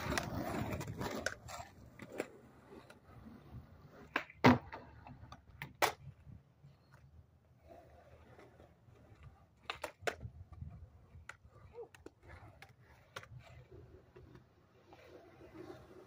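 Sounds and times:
skateboard clacks: 0:00.0 - 0:03.0, 0:04.0 - 0:07.1, 0:08.9 - 0:14.6
skateboard rolling on concrete: 0:00.0 - 0:16.0.

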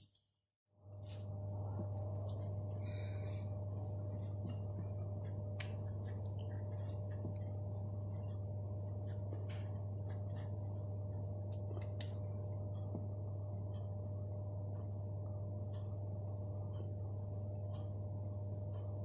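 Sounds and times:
steady low hum: 0:00.7 - 0:19.0.

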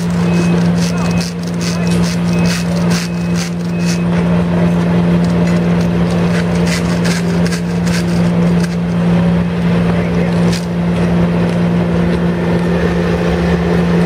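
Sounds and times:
diesel engine humming: 0:00.0 - 0:14.0
short high beeps: 0:00.1 - 0:04.2.

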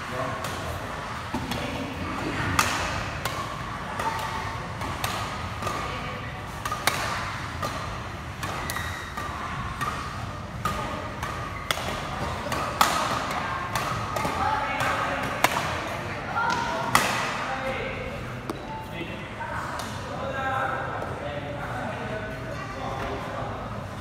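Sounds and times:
rackets hitting shuttlecock: 0:00.4 - 0:15.9, 0:16.5 - 0:17.4.

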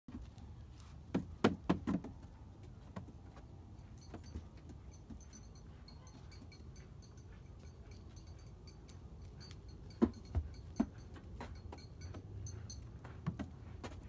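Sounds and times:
hooves knocking on hollow plastic: 0:01.1 - 0:03.4.

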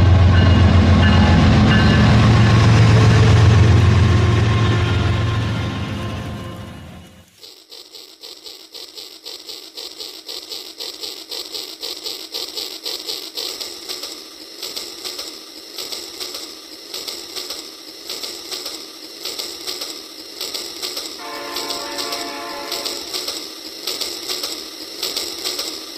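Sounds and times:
toy train motor clicking whir: 0:07.2 - 0:25.9.

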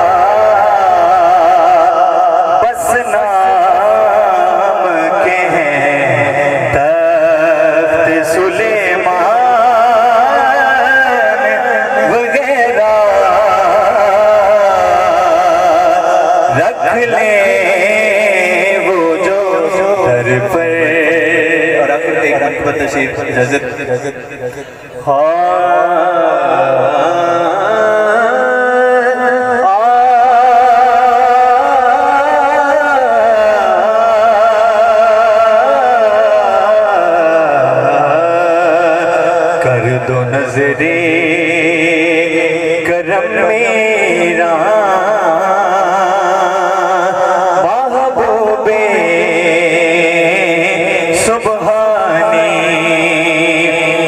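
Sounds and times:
man singing: 0:00.0 - 0:54.0.

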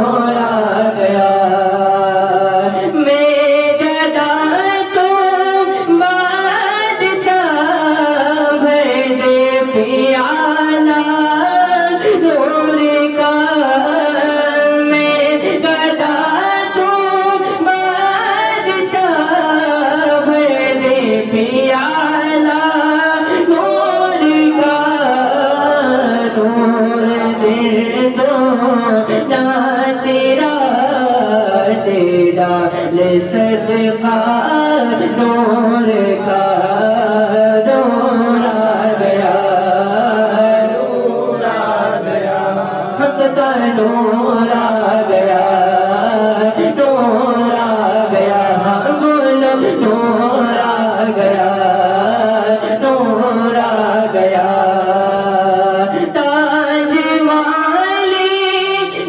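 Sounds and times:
man singing devotional song: 0:00.0 - 0:59.0.

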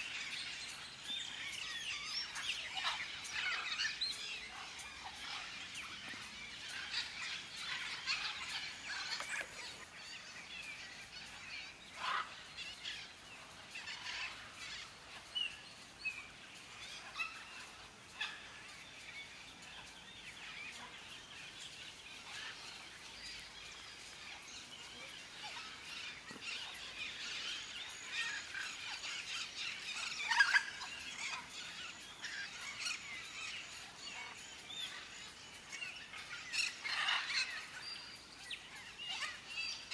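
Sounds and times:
parrots squawking: 0:36.6 - 0:37.6.

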